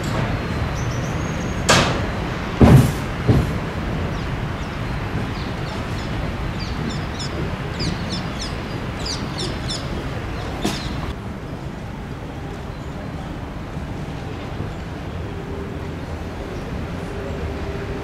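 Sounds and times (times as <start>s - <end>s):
small birds chirping: 4.0s - 11.1s.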